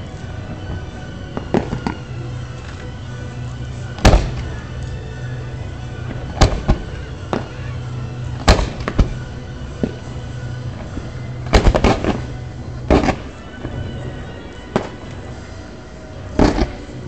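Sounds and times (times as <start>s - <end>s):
firework shells bursting: 0.6s - 2.8s, 4.0s - 5.0s, 6.0s - 7.6s, 8.3s - 14.0s, 16.3s - 17.0s.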